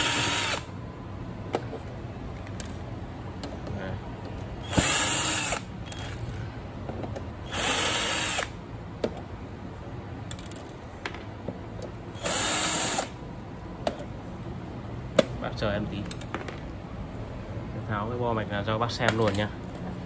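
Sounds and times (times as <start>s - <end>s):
power drill whirring: 0.0s - 0.7s, 4.6s - 6.1s, 7.4s - 8.6s, 12.2s - 13.2s.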